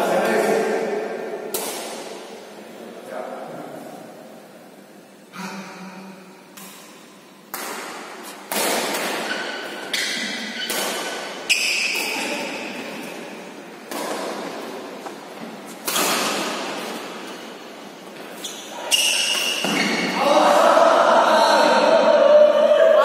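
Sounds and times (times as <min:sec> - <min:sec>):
rackets hitting shuttlecock: 0:01.5 - 0:02.2, 0:06.5 - 0:17.4, 0:18.1 - 0:20.2.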